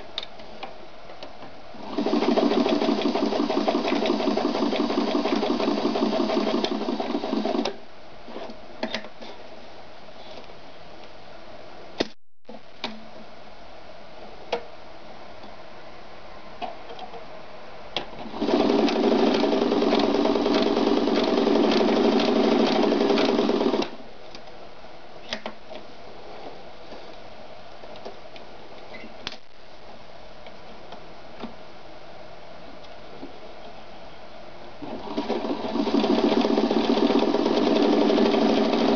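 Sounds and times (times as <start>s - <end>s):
sewing machine stitching: 1.8s - 7.8s, 18.2s - 24.0s, 34.8s - 38.9s.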